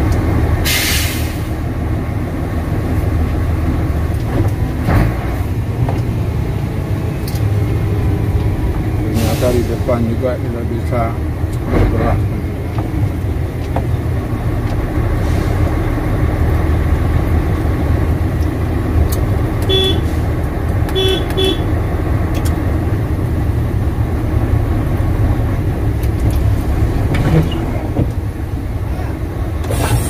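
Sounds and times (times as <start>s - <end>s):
truck engine rumbling: 0.0s - 30.0s
vehicle horn toots: 19.6s - 20.1s, 20.9s - 21.7s.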